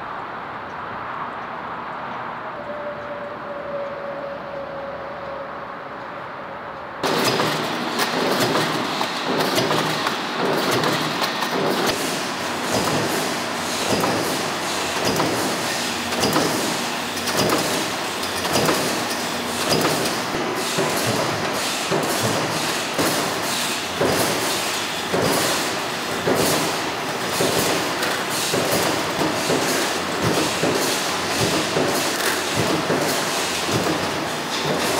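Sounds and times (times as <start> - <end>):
machinery din: 7.0 - 12.0
machine clanks and knocks: 7.0 - 34.9.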